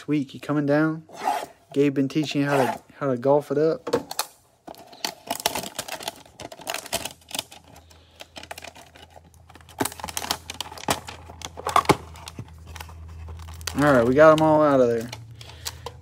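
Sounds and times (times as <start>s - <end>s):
cellophane crinkling: 4.7s - 16.0s.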